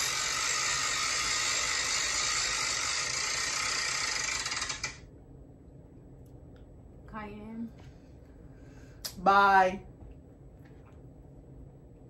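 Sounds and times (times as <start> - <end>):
spinner wheel ratcheting clicks: 0.1 - 5.0.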